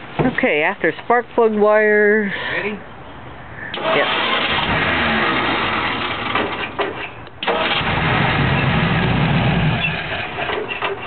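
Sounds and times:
engine cranking on starter: 3.7 - 11.0.

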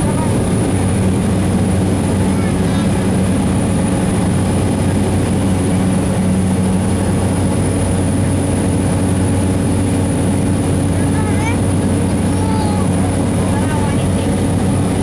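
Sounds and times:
airplane engine drone: 0.0 - 15.0.

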